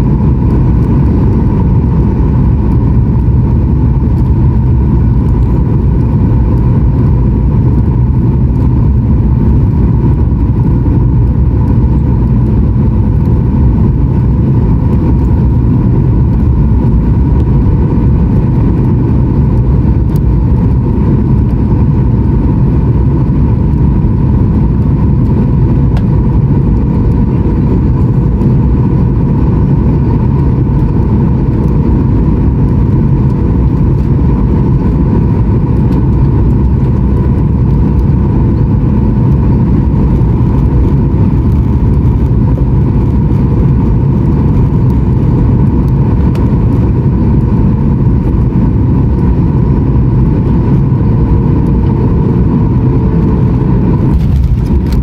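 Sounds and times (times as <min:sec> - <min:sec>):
airplane cabin rumble: 0:00.0 - 0:55.0
jet engine whine: 0:00.0 - 0:55.0.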